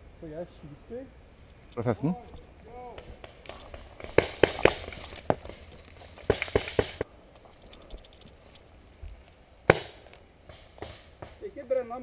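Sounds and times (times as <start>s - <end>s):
paintball markers firing: 2.9s - 7.0s.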